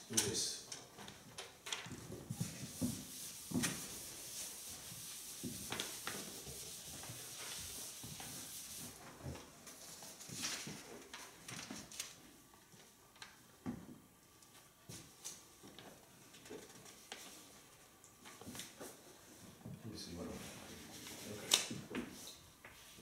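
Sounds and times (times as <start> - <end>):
chalk scratching on chalkboard: 2.3 - 9.0.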